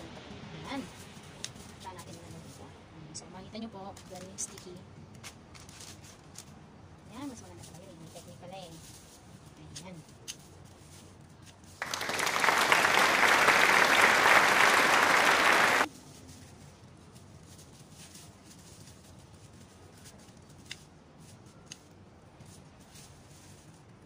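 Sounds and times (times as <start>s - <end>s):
applause: 11.8s - 15.9s.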